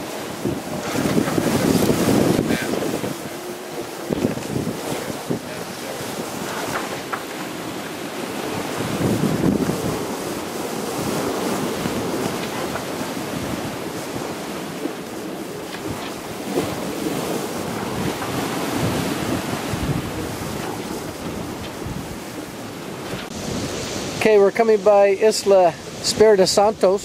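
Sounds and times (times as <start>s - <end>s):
water rushing along hull: 0.0s - 27.0s
wind on microphone: 0.0s - 27.0s.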